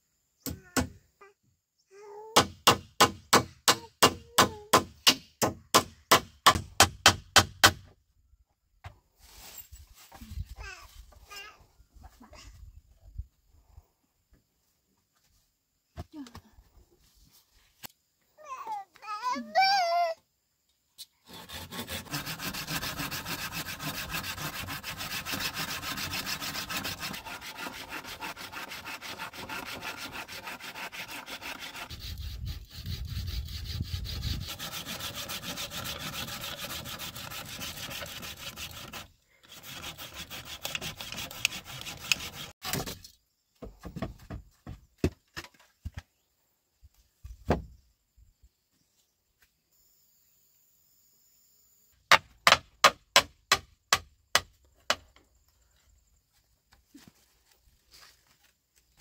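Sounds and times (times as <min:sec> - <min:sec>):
hand saw cutting wood: 0:21.2 - 0:42.9
knocks and scrapes: 0:21.3 - 0:46.2.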